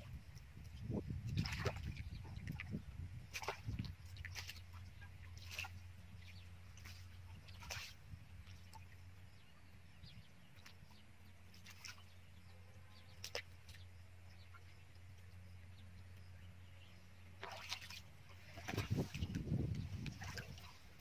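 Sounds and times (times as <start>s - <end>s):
low steady hum: 0.0s - 21.0s
hands splashing in shallow water: 1.3s - 4.8s, 5.4s - 5.8s, 6.8s - 8.9s, 17.4s - 20.8s
short sharp splashes: 1.3s - 5.8s, 6.8s - 8.9s, 11.5s - 12.1s, 13.2s - 13.6s, 17.4s - 20.8s.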